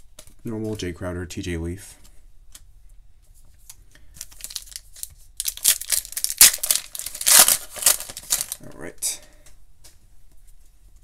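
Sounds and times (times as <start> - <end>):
wrapper crinkling and tearing: 4.2 - 8.6.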